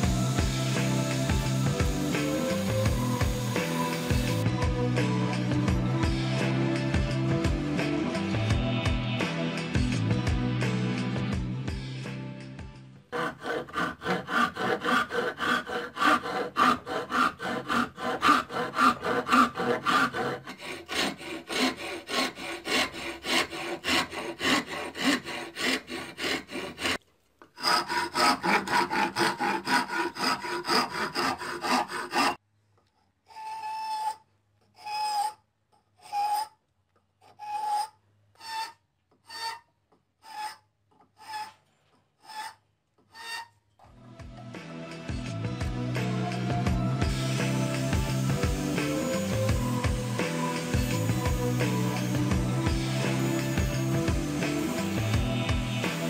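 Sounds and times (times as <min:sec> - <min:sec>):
hand file rasping wood: 0:13.1 - 0:27.0, 0:27.6 - 0:32.4, 0:37.2 - 0:39.6, 0:40.2 - 0:41.6, 0:42.2 - 0:43.5, 0:47.3 - 0:56.0.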